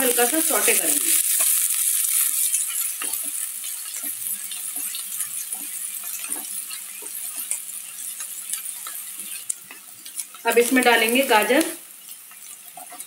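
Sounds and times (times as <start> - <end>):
onion sizzling in hot oil: 0.0 - 13.0
spatula scraping a pan: 1.2 - 10.4, 12.0 - 13.0.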